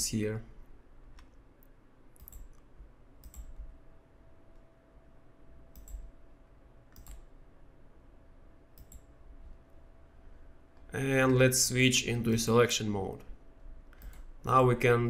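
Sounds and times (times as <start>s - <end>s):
computer mouse clicks: 1.1s - 3.7s, 5.7s - 6.2s, 6.9s - 7.3s, 8.8s - 9.1s, 13.9s - 14.3s.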